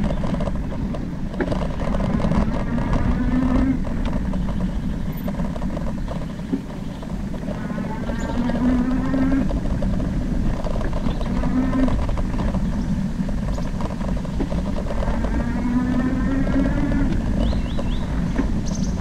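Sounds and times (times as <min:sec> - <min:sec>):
wind and tyre rumble: 0:00.0 - 0:19.0.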